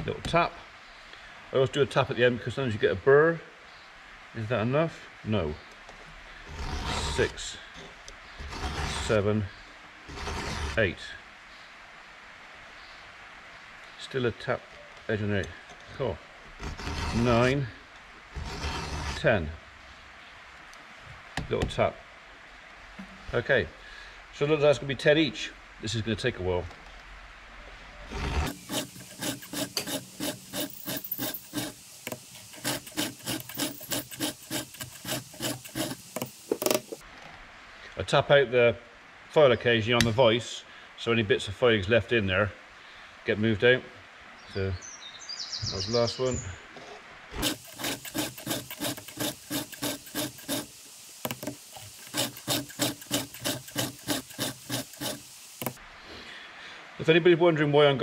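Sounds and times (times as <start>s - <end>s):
file rasping on chainsaw chain: 6.5s - 7.5s, 8.4s - 9.3s, 10.1s - 10.8s, 16.6s - 17.6s, 18.4s - 19.4s, 28.1s - 37.0s, 47.4s - 55.8s.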